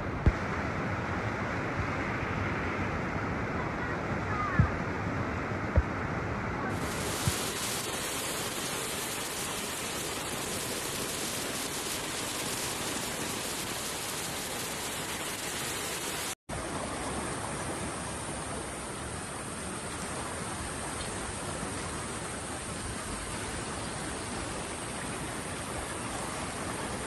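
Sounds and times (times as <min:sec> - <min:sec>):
floodwater rushing: 0:06.6 - 0:27.0.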